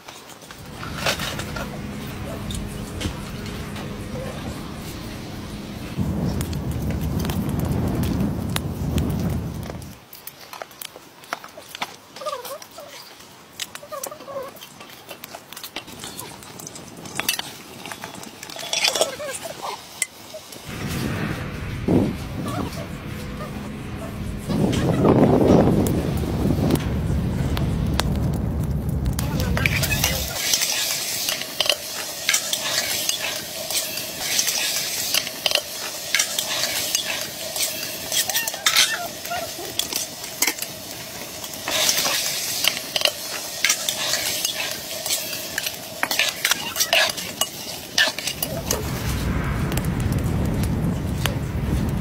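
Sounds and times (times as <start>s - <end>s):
food sizzling in a pot: 0.5s - 10.0s, 29.2s - 50.2s.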